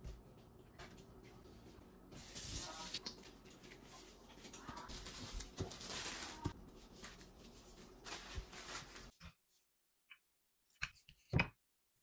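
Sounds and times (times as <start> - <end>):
plastic wrap crinkling: 2.2 - 9.2.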